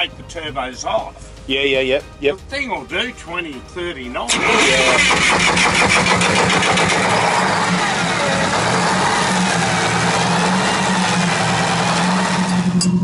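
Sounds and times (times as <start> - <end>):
diesel engine running: 4.3 - 13.0.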